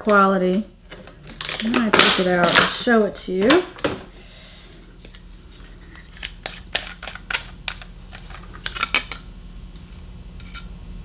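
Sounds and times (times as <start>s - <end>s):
packaging clicks and crackles: 1.2s - 2.7s.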